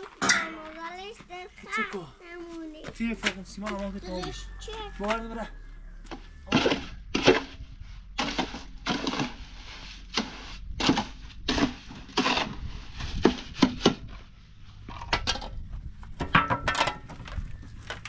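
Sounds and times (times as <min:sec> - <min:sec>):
tool scraping wet mortar: 0:06.5 - 0:07.6, 0:08.2 - 0:14.1.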